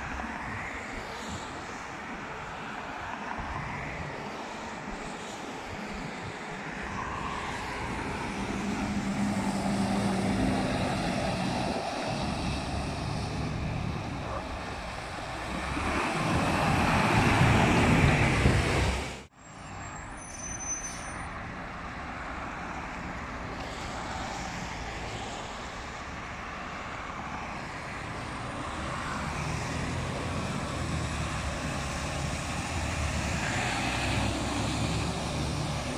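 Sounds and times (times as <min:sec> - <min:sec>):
trucks passing on wet road: 0:00.0 - 0:19.9, 0:21.4 - 0:35.9.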